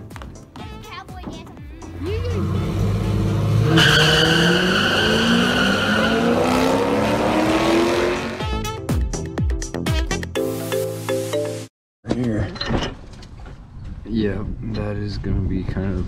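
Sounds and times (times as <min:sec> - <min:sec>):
car engines revving hard: 0:01.9 - 0:08.4
high tire squeal: 0:02.6 - 0:08.4.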